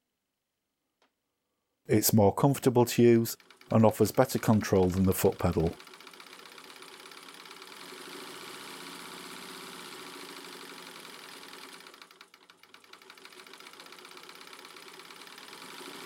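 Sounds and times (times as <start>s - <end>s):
electric sewing machine running: 3.4s - 16.0s.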